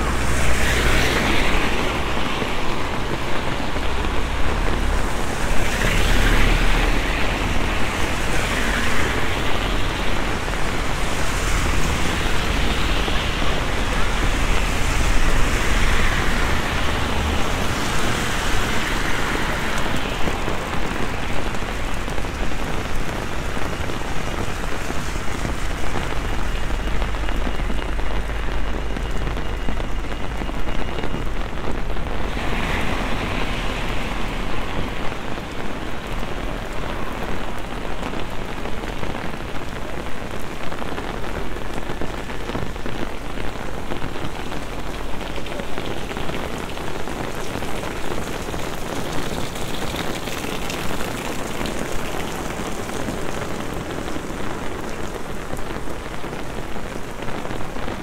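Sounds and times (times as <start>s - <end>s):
car tyres swishing through water: 0.0s - 40.8s, 41.4s - 58.0s
heavy rain on street: 0.0s - 58.0s.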